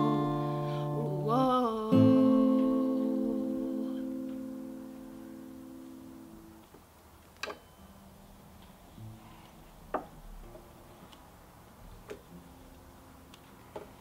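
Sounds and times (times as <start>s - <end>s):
acoustic guitar chord ringing: 0.0s - 6.6s, 7.5s - 9.2s.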